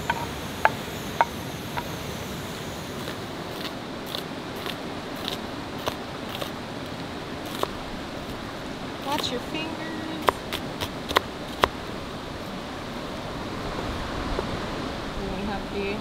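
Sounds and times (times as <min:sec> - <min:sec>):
river rushing: 0:00.0 - 0:16.0
knife slicing onion on wooden board: 0:03.0 - 0:06.6, 0:07.4 - 0:08.4, 0:10.2 - 0:11.8.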